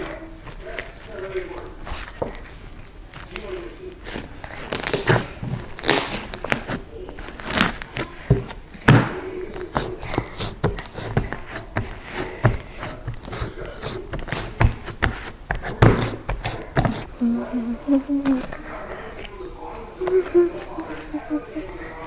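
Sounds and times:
slime squished by hand: 0.1 - 17.2.

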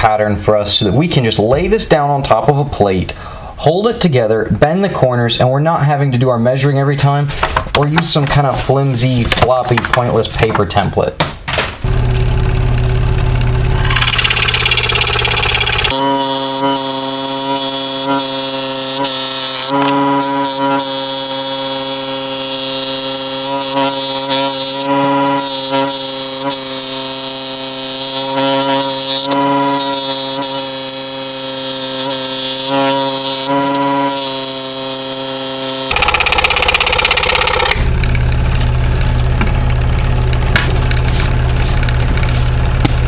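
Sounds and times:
scroll saw cutting: 13.2 - 37.9.

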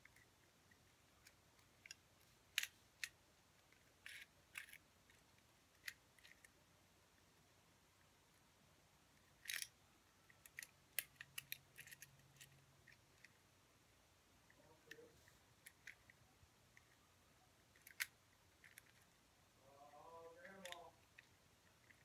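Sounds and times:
plastic puzzle cube clicking: 0.0 - 6.6, 9.2 - 13.4, 15.6 - 16.2, 17.7 - 19.1, 20.4 - 22.0
plastic cube rattle: 1.2 - 6.5, 9.2 - 9.7, 10.4 - 13.4.

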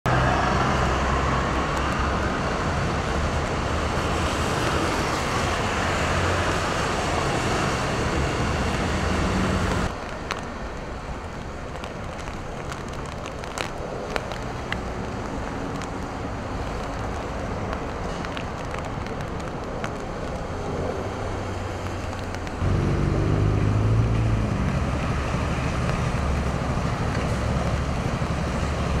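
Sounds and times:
falling rain: 0.1 - 29.0
street noise: 0.1 - 29.0
tyres hissing on wet road: 0.1 - 29.0
low engine drone: 22.6 - 28.4.

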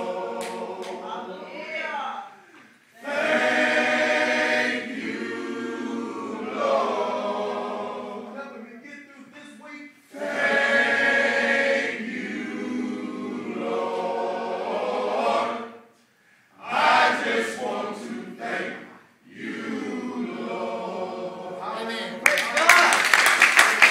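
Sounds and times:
men's choir singing: 0.0 - 1.5, 3.0 - 8.4, 10.1 - 15.8, 16.6 - 21.7.

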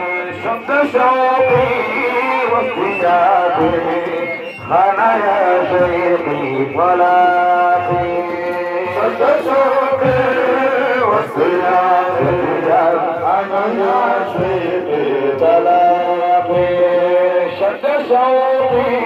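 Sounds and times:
devotional chanting: 0.0 - 19.0
low beat: 0.0 - 19.0.

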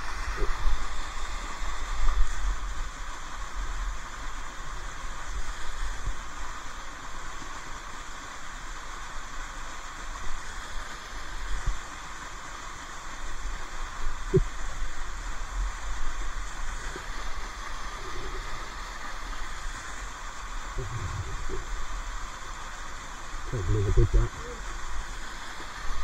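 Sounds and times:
waterfall rushing: 9.7 - 26.0
low rumbling bumps on microphone: 20.8 - 21.7.

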